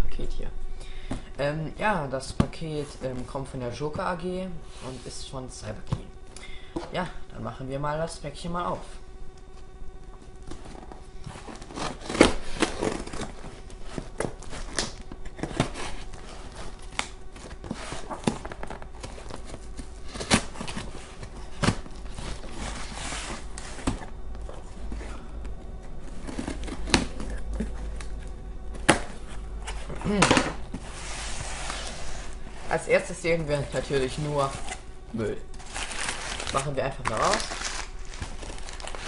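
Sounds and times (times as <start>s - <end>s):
cardboard flaps rustling: 10.2s - 34.8s, 35.6s - 39.0s
scissors cutting packing tape: 11.4s - 13.4s, 35.6s - 39.0s.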